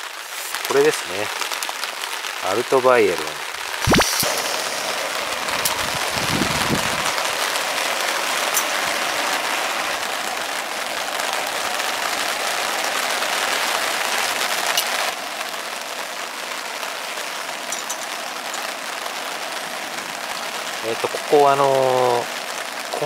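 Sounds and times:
rain falling on a tarp: 0:00.0 - 0:23.0.

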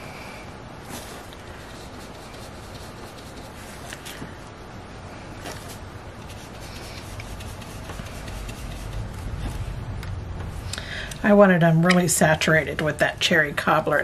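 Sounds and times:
brush rubbing on paper: 0:00.9 - 0:04.2, 0:05.4 - 0:09.7.

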